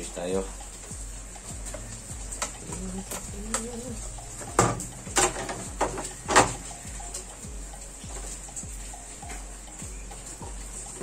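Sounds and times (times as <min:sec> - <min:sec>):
hard plastic knocks and clatters: 0:04.4 - 0:06.6.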